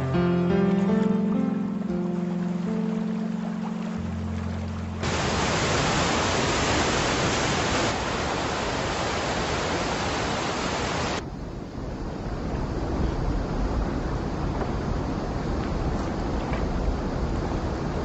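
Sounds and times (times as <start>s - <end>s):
low rumble of water: 0.0s - 18.0s
river rapids rushing: 1.6s - 11.2s.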